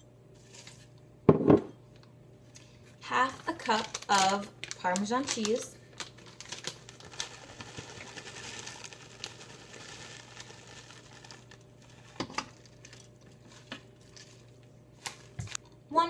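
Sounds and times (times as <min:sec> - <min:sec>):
plastic bag rustling and crinkling: 0:03.1 - 0:15.6.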